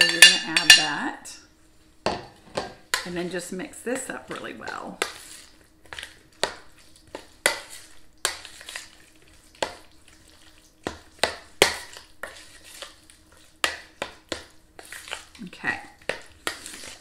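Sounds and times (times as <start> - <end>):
wet stirring: 0.0 - 17.0.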